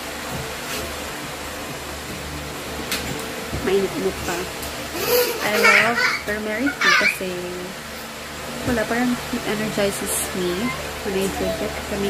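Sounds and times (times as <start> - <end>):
fan-like hiss and hum: 0.0 - 12.0.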